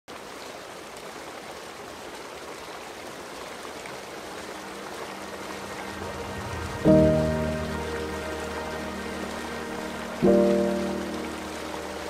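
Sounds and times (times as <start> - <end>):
flowing water rushing: 0.1 - 12.0
soft sustained music notes: 3.8 - 12.0.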